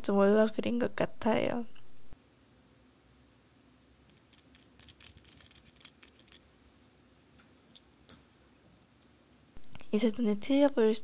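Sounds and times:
makeup clicks and scratching: 0:04.1 - 0:06.4.

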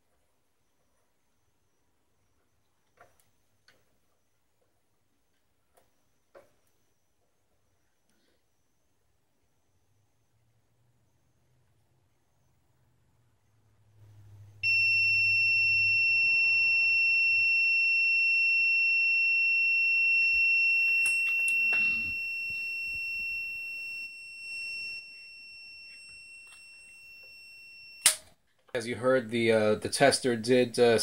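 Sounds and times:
high buzzing alarm tone: 0:14.6 - 0:28.1.

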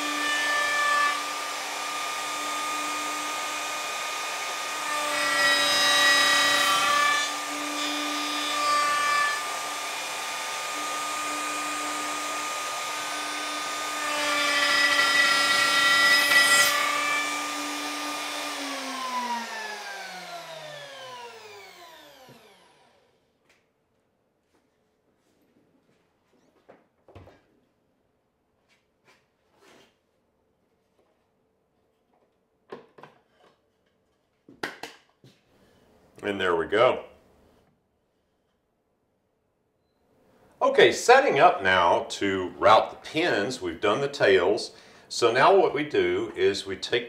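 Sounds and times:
router cutting wood: 0:00.0 - 0:23.1
router winding down whine: 0:15.0 - 0:23.1.

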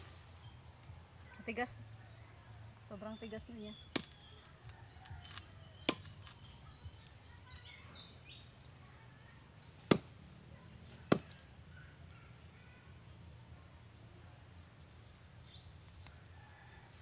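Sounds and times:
knife chopping wood: 0:03.9 - 0:04.3, 0:05.2 - 0:06.4, 0:09.8 - 0:10.2, 0:10.9 - 0:11.5.

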